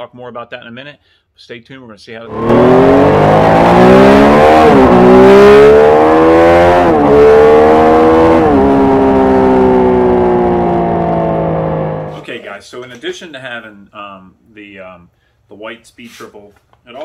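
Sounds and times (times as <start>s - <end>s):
motorcycle engine accelerating hard: 2.3s - 12.2s.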